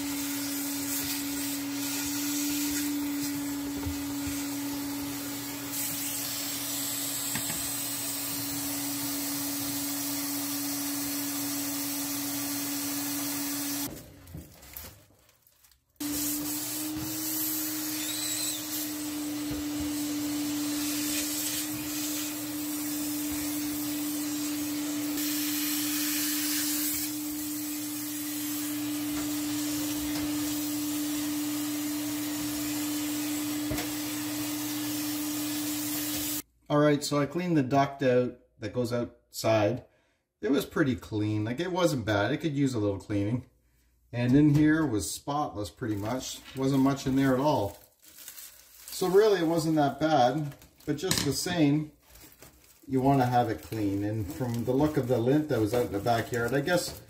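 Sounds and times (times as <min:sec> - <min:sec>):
vacuum cleaner whining: 0:00.0 - 0:13.9, 0:16.0 - 0:36.4, 0:52.9 - 0:57.0.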